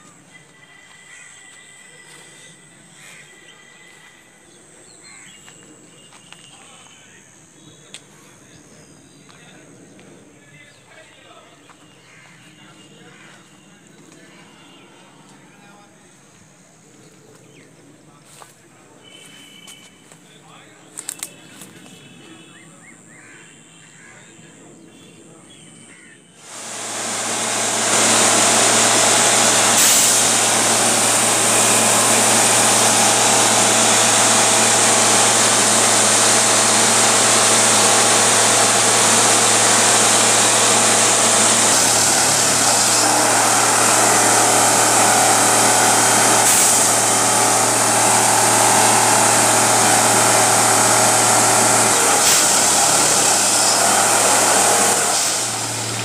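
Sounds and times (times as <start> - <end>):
machinery drone: 0.0 - 6.2, 26.4 - 56.0
loud hiss: 26.4 - 56.0.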